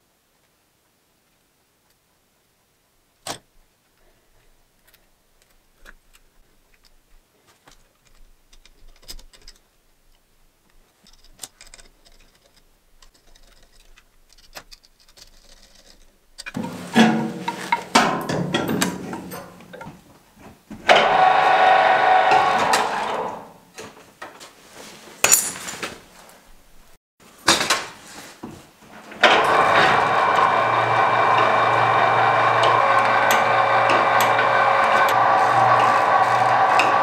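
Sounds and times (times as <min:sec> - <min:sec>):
hand tools clicking and clattering: 0:11.0 - 0:20.0
electric motor humming: 0:20.9 - 0:23.6, 0:29.2 - 0:37.0.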